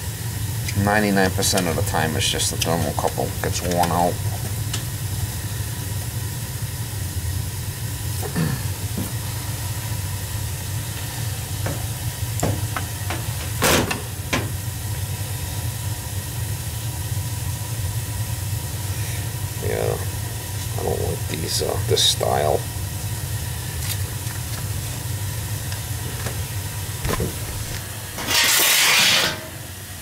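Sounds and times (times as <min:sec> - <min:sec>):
steady hiss: 0:00.0 - 0:30.0
scrape: 0:28.2 - 0:29.6.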